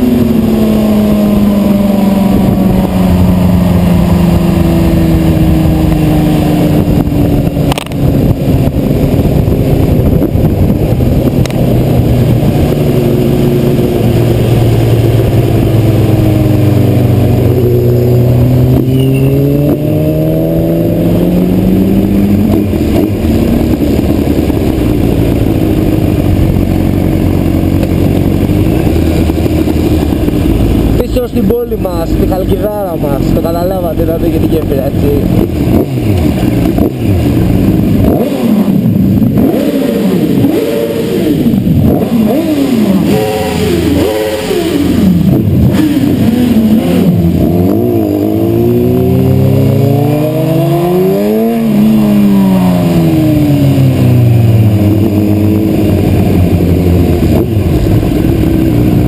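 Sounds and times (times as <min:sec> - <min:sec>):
wind noise rushing: 0:00.0 - 0:33.5
motorcycle engine slowing down: 0:00.0 - 0:40.6, 0:51.6 - 0:59.0.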